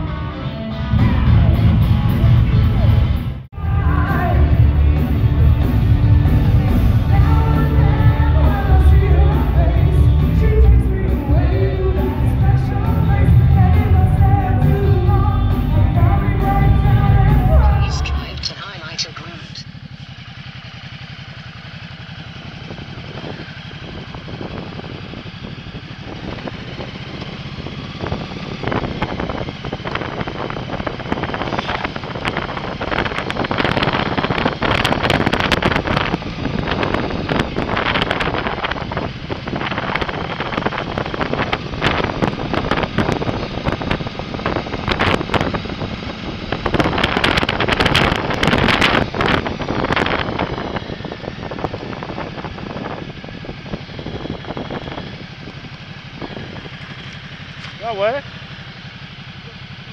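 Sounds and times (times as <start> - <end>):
motorcycle engine running: 0.0 - 59.9
wind buffeting microphone: 21.1 - 57.9.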